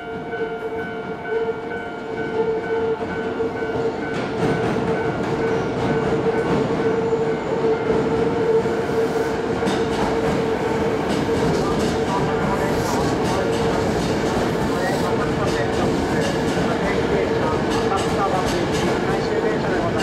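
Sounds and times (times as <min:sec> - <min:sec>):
train wheels rumbling and clattering: 0:02.0 - 0:20.0.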